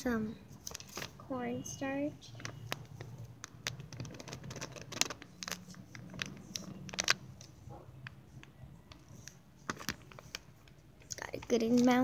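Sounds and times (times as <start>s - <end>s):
plastic bag crinkling: 0.5s - 1.2s, 2.2s - 12.0s
powder crunching: 2.2s - 7.5s.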